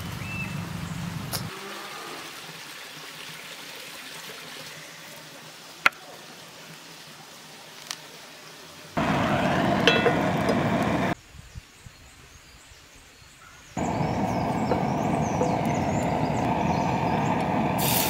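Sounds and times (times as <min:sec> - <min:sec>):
faint outdoor hiss: 0:00.0 - 0:18.0
wood fire burning in stove: 0:09.0 - 0:11.2, 0:13.8 - 0:18.0.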